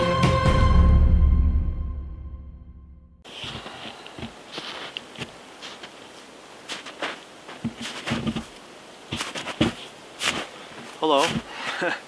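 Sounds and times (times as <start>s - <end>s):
faint outdoor hiss: 3.2s - 12.0s
footsteps in snow: 3.2s - 12.0s.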